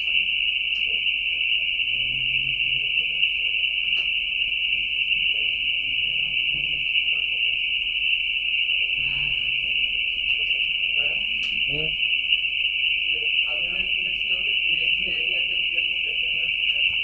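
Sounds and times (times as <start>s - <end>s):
faint murmuring voices: 0.0s - 7.8s, 8.7s - 12.1s, 12.9s - 17.0s
high-pitched hissing whine: 8.9s - 12.0s.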